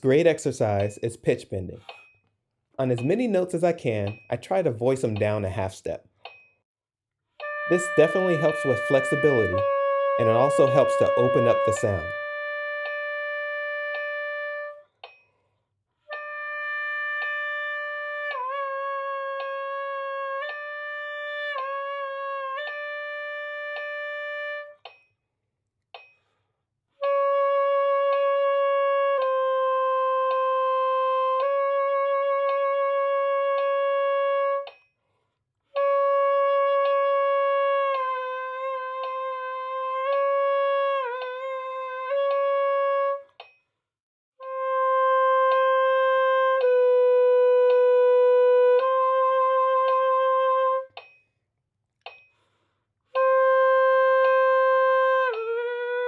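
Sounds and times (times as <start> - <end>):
alto saxophone bending long tones: 7.4 - 14.8, 16.1 - 24.8, 27.0 - 34.7, 35.8 - 43.3, 44.4 - 50.9, 53.2 - 56.0
breaths: 26.0 - 26.7, 35.0 - 35.5, 52.2 - 53.0.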